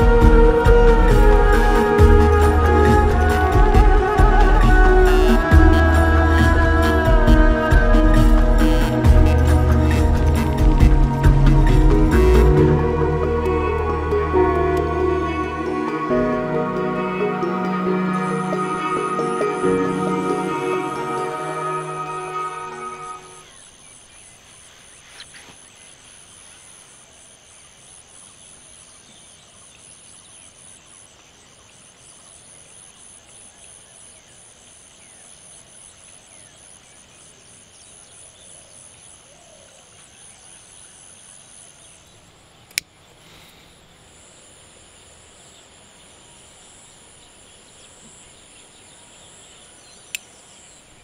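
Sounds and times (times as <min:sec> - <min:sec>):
high pulsing trills: 0:00.0 - 0:23.5
insects chirring: 0:01.3 - 0:51.0.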